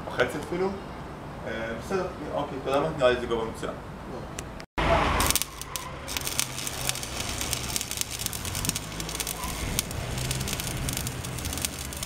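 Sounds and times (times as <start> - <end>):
welding arc crackling and sizzling: 5.0 - 12.0.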